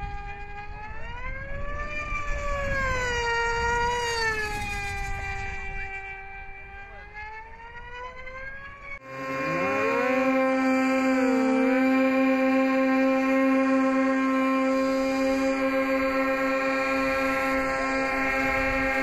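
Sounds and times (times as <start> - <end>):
model plane engine whine: 0.0 - 19.0
steady pitched sound: 8.9 - 19.0.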